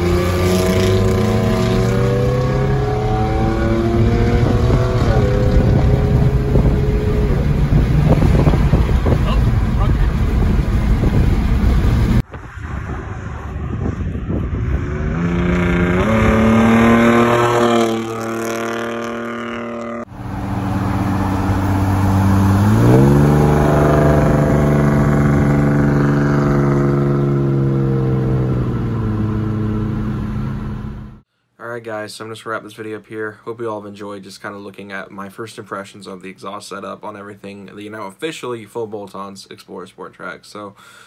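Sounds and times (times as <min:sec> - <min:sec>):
loud raspy truck engine revving: 0:00.0 - 0:09.8, 0:14.8 - 0:31.2.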